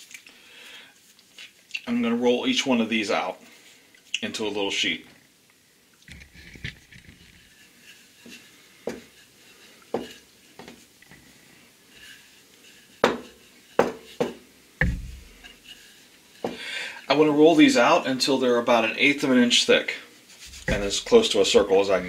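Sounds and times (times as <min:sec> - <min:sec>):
rolling pin rolling dough: 0:07.2 - 0:16.6, 0:20.3 - 0:22.0
dull thump: 0:13.0 - 0:15.6, 0:20.4 - 0:21.1.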